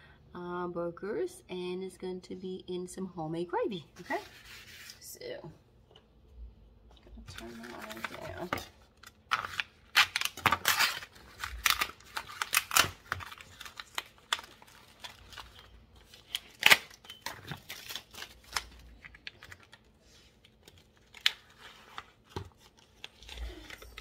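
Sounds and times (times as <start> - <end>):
food packaging rustling: 7.3 - 24.0.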